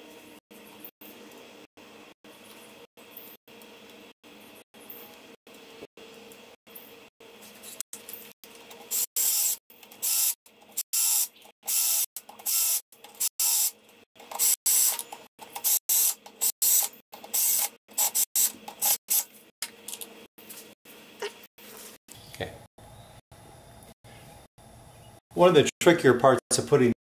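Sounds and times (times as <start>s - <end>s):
cordless drill bursts: 8.9s - 15.0s, 15.6s - 19.2s.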